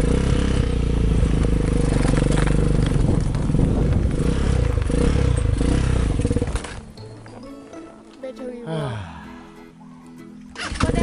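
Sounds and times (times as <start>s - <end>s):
quad bike engine running: 0.0s - 6.9s, 10.6s - 11.0s.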